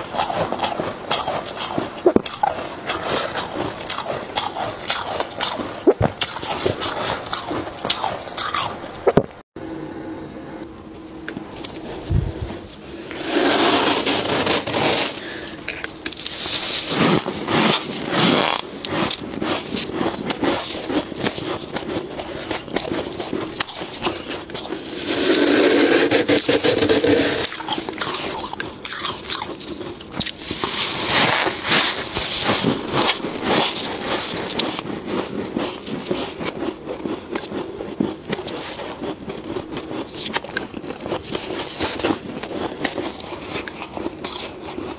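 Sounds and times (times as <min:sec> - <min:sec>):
frost crunching while chewed: 0:00.0 - 0:09.2, 0:14.1 - 0:44.9
gloved hands scraping frost: 0:11.6 - 0:28.3, 0:30.3 - 0:36.5.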